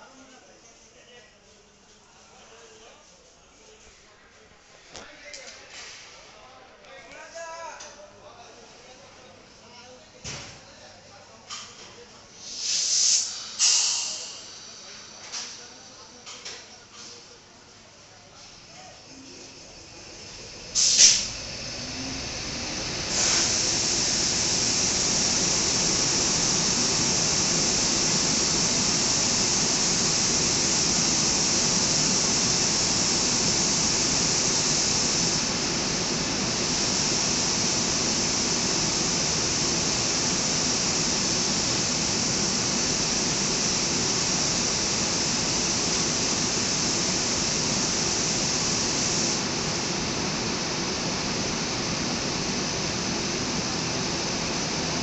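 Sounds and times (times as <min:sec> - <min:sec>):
cooling blowers hissing: 0:12.2 - 0:16.8, 0:17.4 - 0:55.0.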